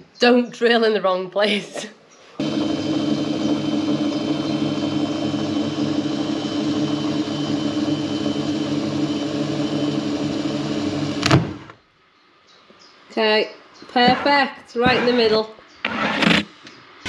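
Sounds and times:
power drill boring: 0:02.4 - 0:11.7
drill bit breaking through: 0:02.4 - 0:11.8.

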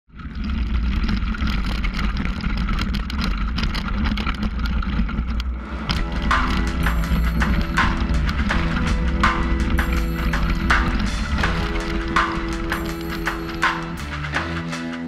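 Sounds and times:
bike rattling: 0:00.1 - 0:14.4
music: 0:05.4 - 0:15.0.

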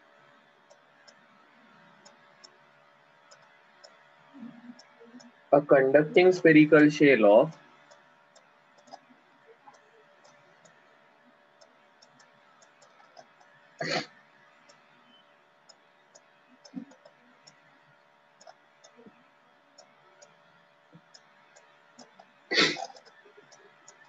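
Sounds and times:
faint scattered ticks: 0:00.0 - 0:06.3, 0:07.4 - 0:24.0
low steady hum: 0:00.0 - 0:24.0
person making throat noises: 0:13.8 - 0:14.1, 0:22.5 - 0:23.0.

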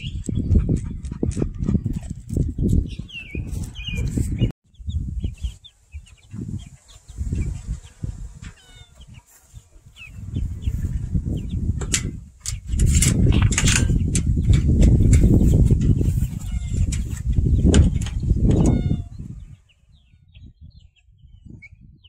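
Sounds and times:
small birds chirping: 0:00.0 - 0:22.0
wind gusts on microphone: 0:00.0 - 0:22.0.

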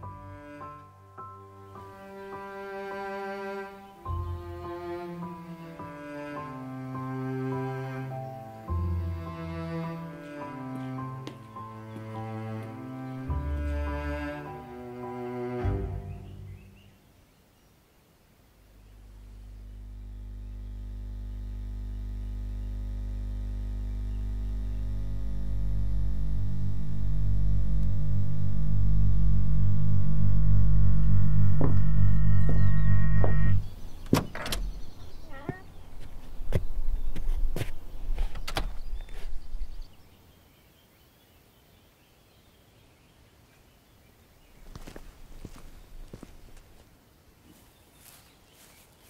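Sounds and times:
low steady drone: 0:18.6 - 0:35.4
higher tones: 0:18.8 - 0:33.8
low rumble: 0:18.8 - 0:34.0
sharp knocks and clicks: 0:31.5 - 0:34.8.

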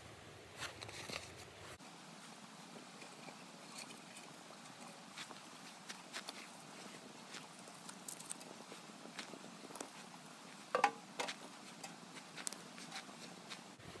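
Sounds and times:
faint clicks and crackles: 0:02.9 - 0:10.1, 0:10.7 - 0:13.6
wood knocking against metal: 0:10.7 - 0:11.4.

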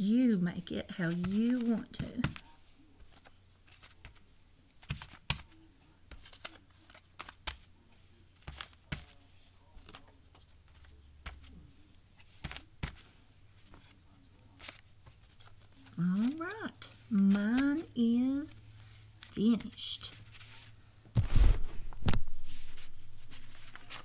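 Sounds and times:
paper crackling and tapping: 0:00.6 - 0:24.0.

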